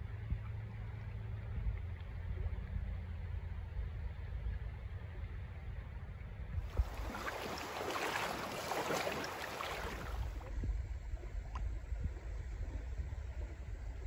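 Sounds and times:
wind rumble on microphone: 0.0s - 14.0s
water splashing: 6.7s - 10.5s.

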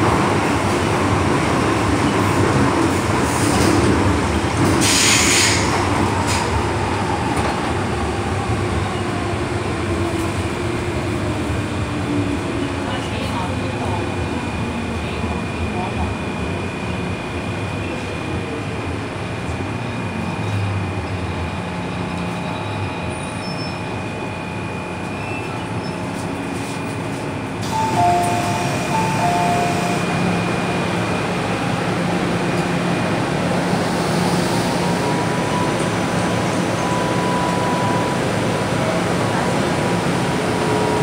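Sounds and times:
train rumbling through tunnel: 0.0s - 41.0s.

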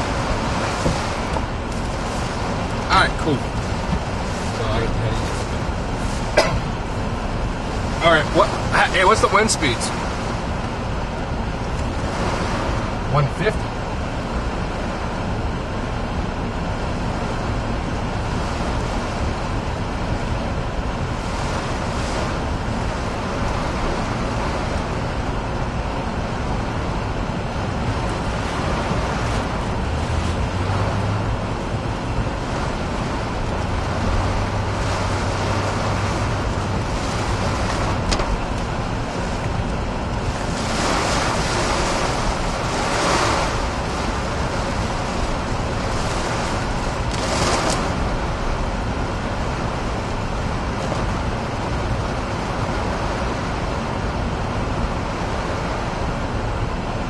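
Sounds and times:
car engine: 0.0s - 57.0s
strong wind and driving rain: 0.0s - 57.0s
tyres on flooded road: 0.0s - 57.0s.

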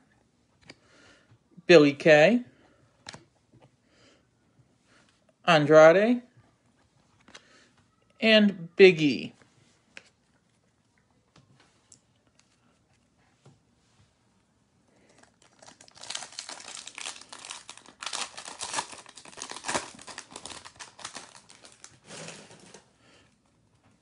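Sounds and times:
wrapper crackling and rustling: 15.1s - 22.8s.

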